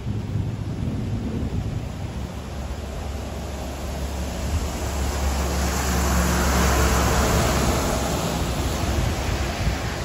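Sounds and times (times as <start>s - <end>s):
deep low rumble: 0.0s - 5.9s
heavy rain pouring: 0.0s - 10.0s.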